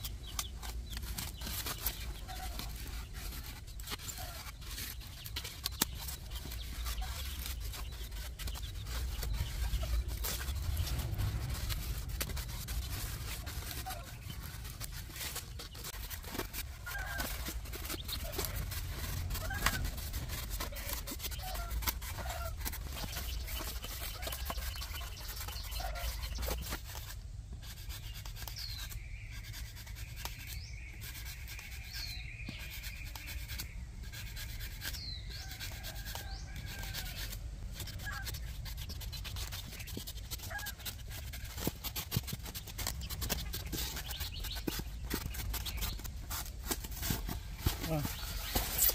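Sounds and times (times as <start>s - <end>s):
blade scraping foam: 0.0s - 48.9s
low rumble: 8.8s - 15.2s.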